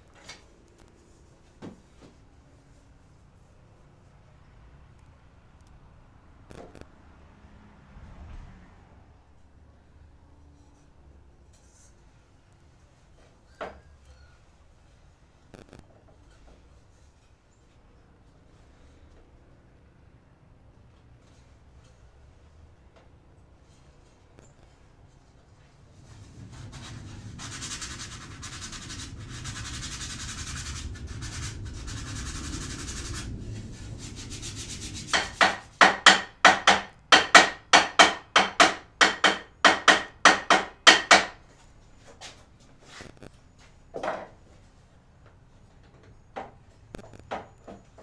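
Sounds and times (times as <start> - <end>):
hand sanding wood: 26.0 - 41.4
light wooden knocks: 35.1 - 41.4.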